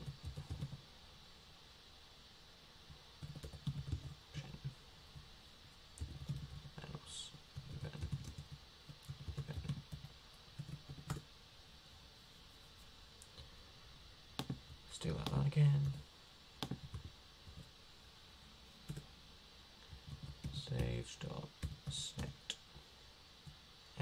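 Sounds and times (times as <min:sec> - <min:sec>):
typing on computer keyboard: 0:00.0 - 0:00.8, 0:03.2 - 0:04.2, 0:06.0 - 0:06.7, 0:07.6 - 0:11.2, 0:20.0 - 0:20.9.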